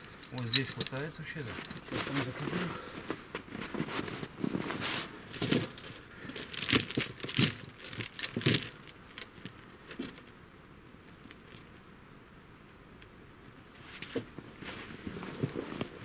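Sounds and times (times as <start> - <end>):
snow chain clinking and rattling: 0.0 - 2.5, 5.3 - 9.4.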